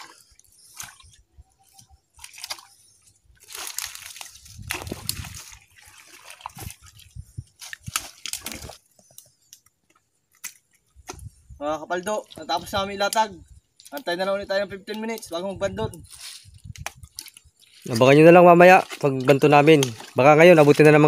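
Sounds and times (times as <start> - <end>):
boots splashing through mud: 0.0 - 1.2, 2.1 - 8.8, 16.8 - 21.0.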